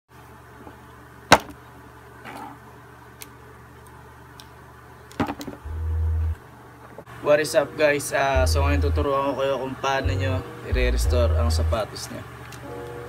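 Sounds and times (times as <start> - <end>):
short low hum: 5.6 - 6.4.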